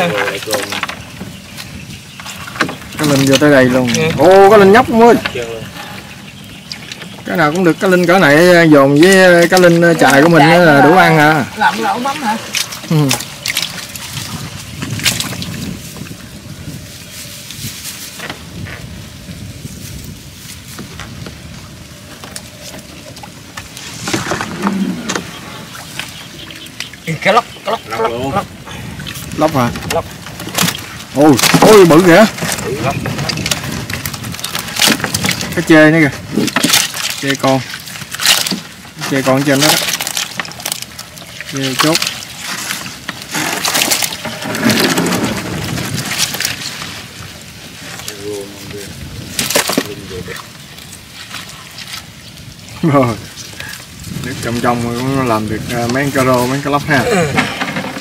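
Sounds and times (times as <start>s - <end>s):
water splashing and pattering: 0.0s - 58.0s
wet net shaken into boat: 9.0s - 19.0s, 23.4s - 26.2s, 29.1s - 48.2s, 48.8s - 52.2s, 53.2s - 58.0s
catch dropping onto hull: 57.2s - 58.0s.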